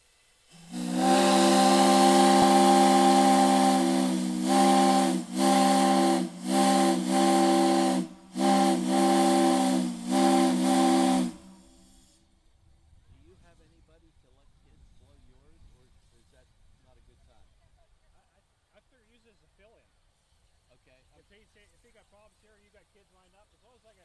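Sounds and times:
steam hiss: 0:00.0 - 0:12.3, 0:18.7 - 0:24.0
three-chime steam whistle blasts: 0:00.5 - 0:12.2.

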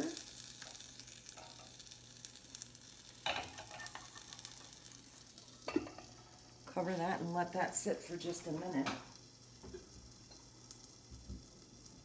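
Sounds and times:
faint sizzling with crackles: 0:00.0 - 0:12.0
metal cookware clatter: 0:03.2 - 0:04.4, 0:05.7 - 0:06.1.

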